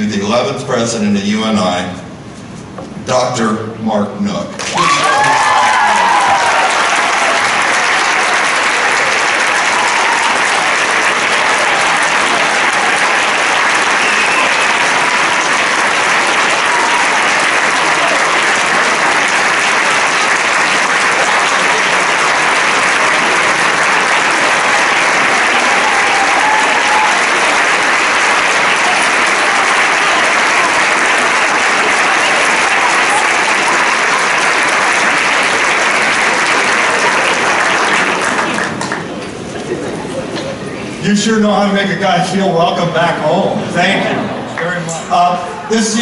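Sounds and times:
audience applauding: 0:04.6 - 0:40.0.

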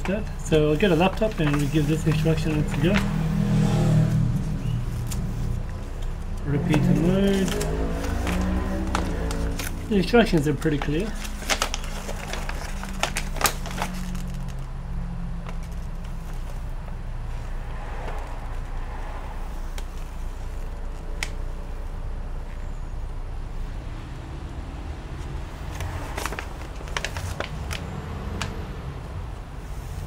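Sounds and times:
paper rustling and crackling: 0:00.0 - 0:03.2, 0:04.8 - 0:18.7, 0:25.6 - 0:28.5.

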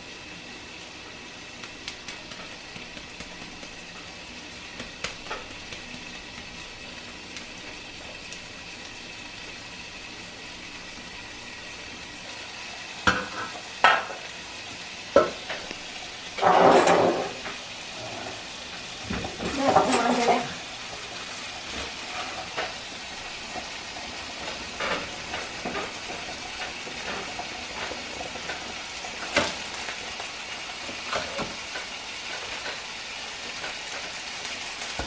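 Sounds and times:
meat sizzling in a pan: 0:00.0 - 0:35.0.

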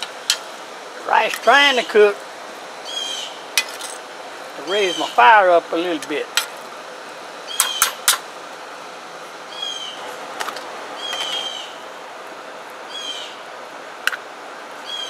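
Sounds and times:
bird calling: 0:02.8 - 0:03.7, 0:04.6 - 0:05.4, 0:07.4 - 0:08.1, 0:09.4 - 0:10.2, 0:10.9 - 0:11.9, 0:12.8 - 0:13.5, 0:14.8 - 0:15.0.

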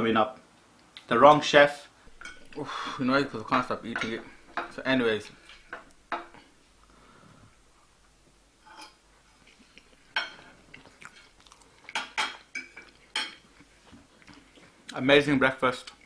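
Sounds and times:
cutlery clinking on plate: 0:02.1 - 0:02.6, 0:03.2 - 0:04.8, 0:10.1 - 0:10.5, 0:11.9 - 0:13.5.

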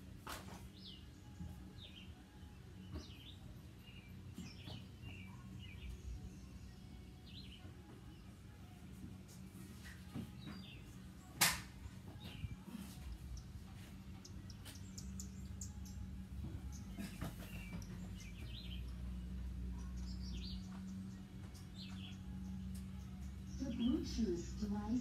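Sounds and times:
birds chirping: 0:00.0 - 0:25.0
steady low hum: 0:00.0 - 0:25.0
sharp click: 0:11.4 - 0:11.7.

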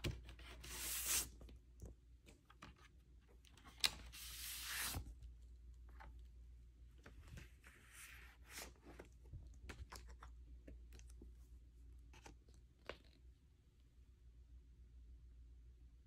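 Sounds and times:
paper sleeves rustling and scraping: 0:00.3 - 0:01.4, 0:03.8 - 0:05.2, 0:07.0 - 0:09.2.

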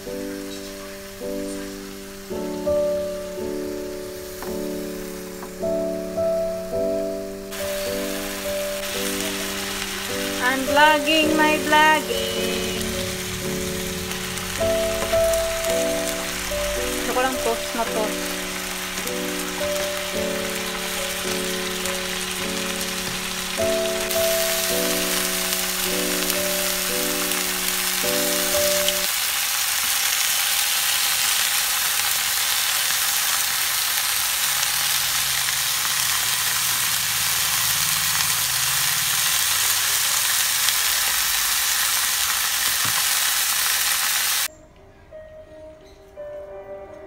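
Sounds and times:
chicken sizzling in frying pan: 0:00.0 - 0:06.6, 0:07.4 - 0:44.5
tune playing: 0:01.2 - 0:29.1.

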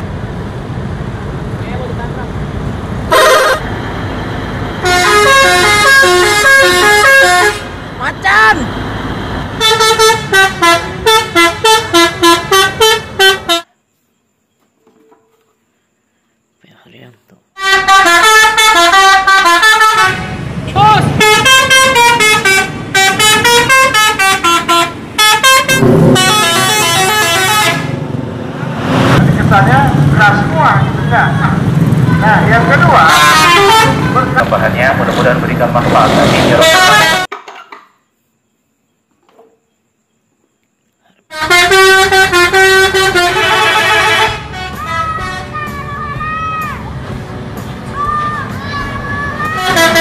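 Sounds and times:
bus engine running: 0:00.0 - 0:13.7, 0:17.6 - 0:37.3, 0:41.4 - 0:50.0
traffic: 0:00.0 - 0:50.0
multi-tone musical bus horns: 0:03.0 - 0:03.8, 0:04.7 - 0:13.9, 0:17.6 - 0:28.2, 0:32.0 - 0:37.4, 0:41.3 - 0:50.0.

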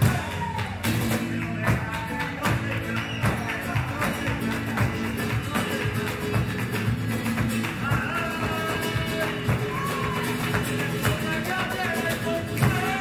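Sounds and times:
acoustic guitar: 0:00.0 - 0:13.0
dance shoes striking stage: 0:00.0 - 0:13.0
rhythmic handclaps: 0:00.0 - 0:13.0
person singing: 0:07.8 - 0:13.0.

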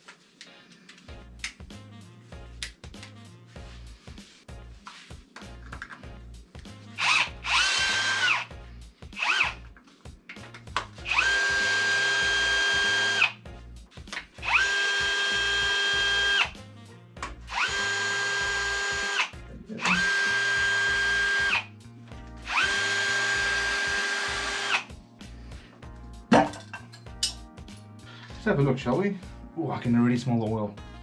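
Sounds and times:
cordless drill whining: 0:07.0 - 0:08.5, 0:09.2 - 0:09.6, 0:11.0 - 0:13.4, 0:14.4 - 0:16.6, 0:17.5 - 0:21.7, 0:22.4 - 0:24.9.

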